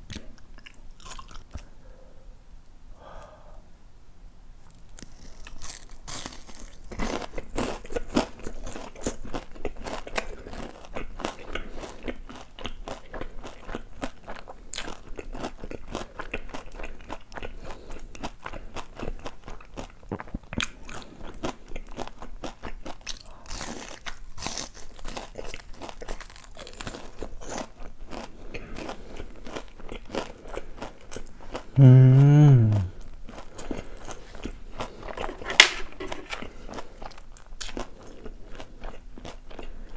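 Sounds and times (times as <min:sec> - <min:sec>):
crunching and chewing food: 0:00.0 - 0:02.0, 0:04.6 - 0:31.8, 0:32.8 - 0:39.9
person humming: 0:31.8 - 0:33.0.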